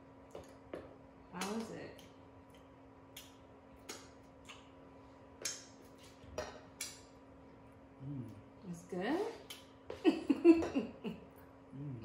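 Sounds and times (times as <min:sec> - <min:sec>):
wet lip smacks: 0:02.5 - 0:04.7.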